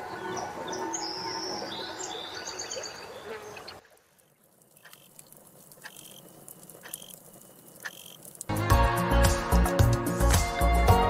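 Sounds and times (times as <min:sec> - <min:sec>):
birds calling and chirping: 0:00.0 - 0:03.9.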